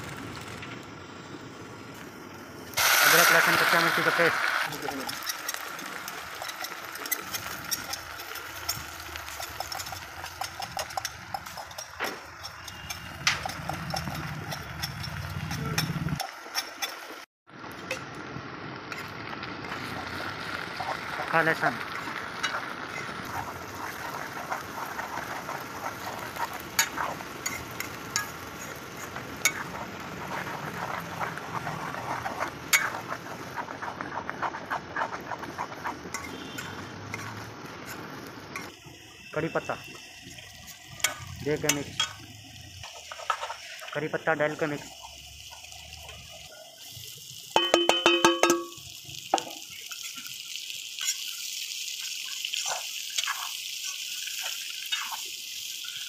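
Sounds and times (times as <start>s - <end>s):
food sizzling in hot oil: 0.0s - 56.0s
ladle scraping a pan: 4.7s - 17.1s, 22.4s - 38.7s, 52.6s - 55.2s
gas burner rumble: 17.6s - 38.7s
ladle clinking against metal: 47.6s - 48.8s.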